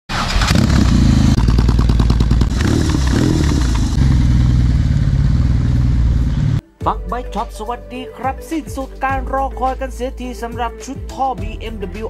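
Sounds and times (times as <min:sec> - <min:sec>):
motorbike engine running loud: 0:00.3 - 0:06.6.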